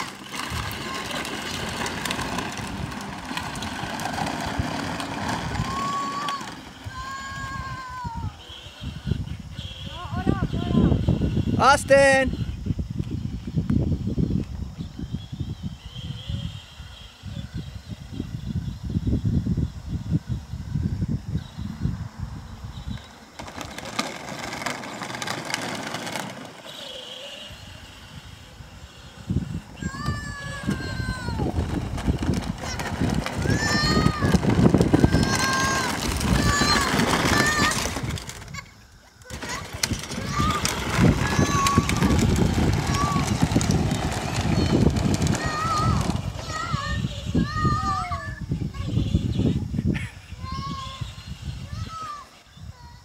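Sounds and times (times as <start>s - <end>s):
electric toy motor whirring: 0.0s - 9.8s, 22.8s - 49.6s
plastic wheels rumbling on pavement: 0.0s - 53.0s.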